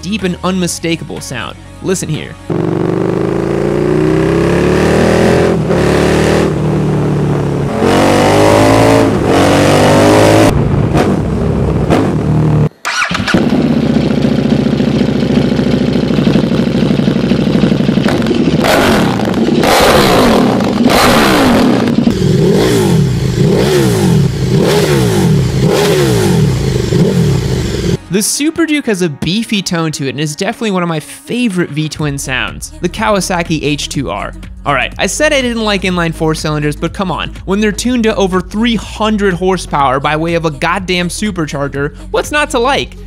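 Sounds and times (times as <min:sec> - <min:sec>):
motorcycle engine revving: 0:02.5 - 0:28.1.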